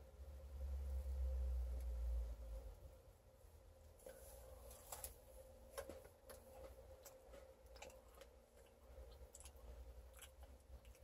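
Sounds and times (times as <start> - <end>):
faint chewing: 4.1 - 11.0.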